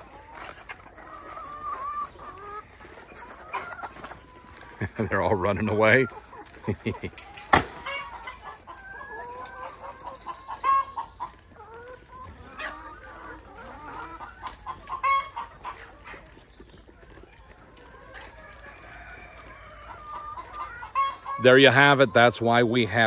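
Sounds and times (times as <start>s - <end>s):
hens cackling: 0.0s - 23.0s
hens clucking: 0.0s - 23.0s.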